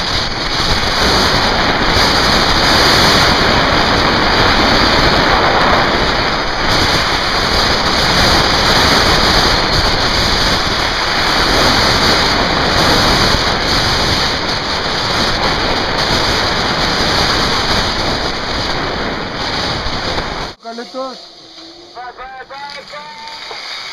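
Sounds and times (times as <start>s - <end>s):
wind buffeting microphone: 0.0s - 20.6s
trolley running on wire: 20.6s - 23.9s.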